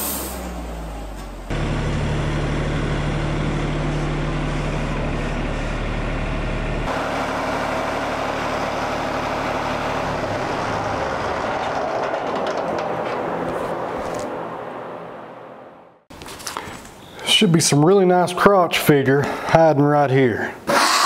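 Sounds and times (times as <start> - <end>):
sawmill engine idling: 0.0 - 13.5.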